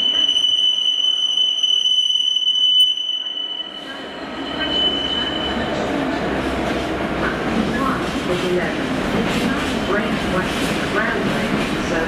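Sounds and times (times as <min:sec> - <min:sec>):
train wheels squealing on rails: 0:00.0 - 0:06.9
low rumble of passing train: 0:03.4 - 0:12.0.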